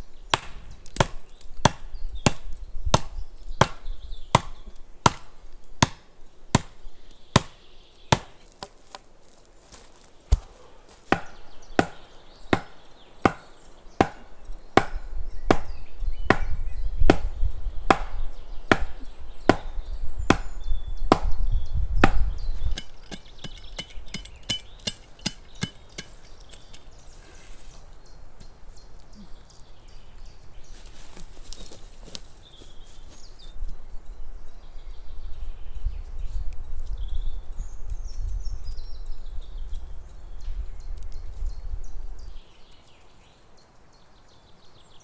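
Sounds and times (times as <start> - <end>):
wood being chopped: 0.3 - 6.8, 7.4 - 9.0, 10.3 - 17.3, 17.9 - 21.4, 22.0 - 26.8.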